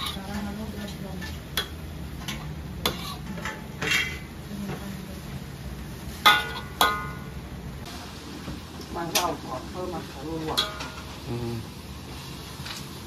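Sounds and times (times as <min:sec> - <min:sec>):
metal spatula scraping a wok: 0:00.0 - 0:04.4, 0:06.0 - 0:07.2.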